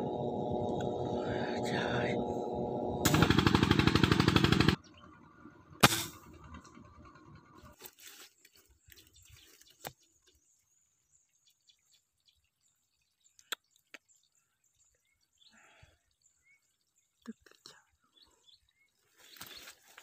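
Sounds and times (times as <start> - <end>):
faint outdoor sound: 0.0 - 20.0
air rifle shot: 3.1 - 4.8, 5.8 - 6.2.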